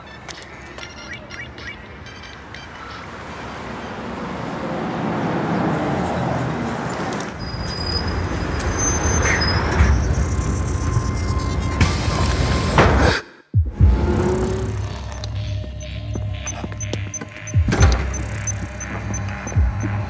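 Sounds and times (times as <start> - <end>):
bus and traffic: 0.0 - 13.2, 13.8 - 20.0
heavy low rumble: 13.6 - 20.0.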